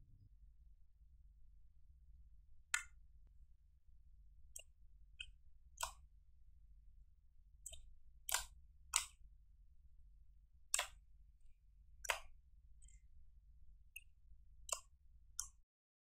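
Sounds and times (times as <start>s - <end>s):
slime wet pops and clicks: 2.8s - 3.0s, 4.6s - 6.0s, 7.7s - 9.2s, 10.7s - 11.0s, 12.0s - 12.4s.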